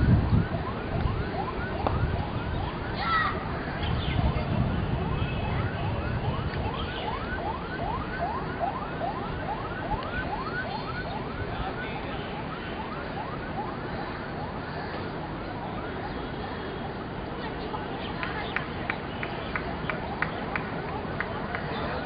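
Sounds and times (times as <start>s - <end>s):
siren yelping: 0.0s - 16.2s
steady background noise: 0.0s - 22.0s.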